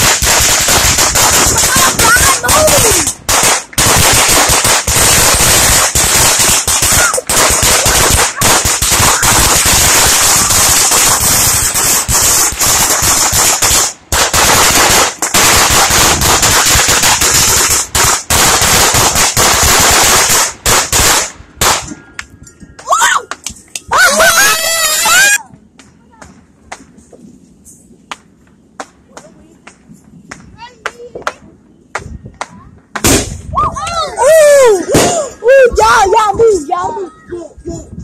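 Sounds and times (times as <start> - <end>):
firecrackers popping: 0.0 - 33.6, 34.2 - 35.4.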